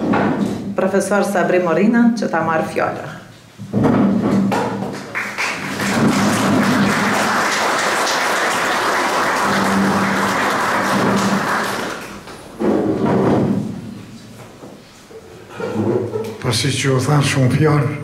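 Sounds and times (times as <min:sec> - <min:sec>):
audience applauding: 0:04.8 - 0:12.4.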